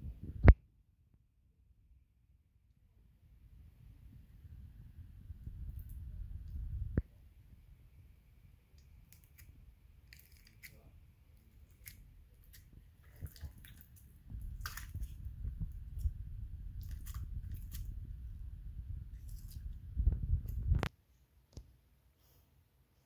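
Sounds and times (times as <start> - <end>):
low rumble of handling: 4.0 - 7.0, 10.8 - 20.9.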